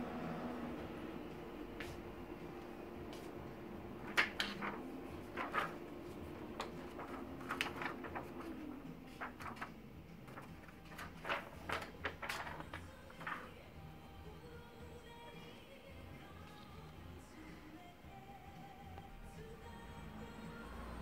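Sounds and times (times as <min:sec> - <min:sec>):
printer humming: 0:00.0 - 0:15.4
paper sheet rustling and crackling: 0:03.1 - 0:13.8.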